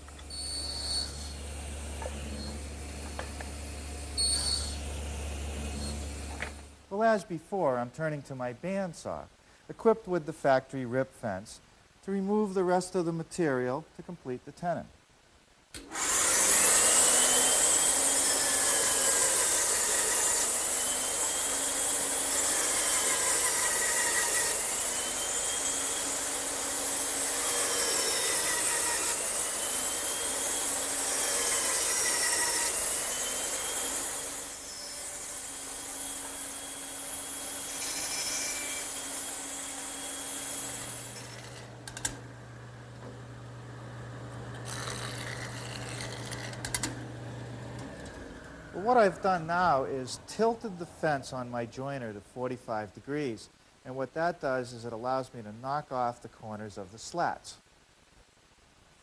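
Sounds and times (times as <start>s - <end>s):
bandsaw cutting wood: 15.8s - 42.3s, 44.2s - 50.7s.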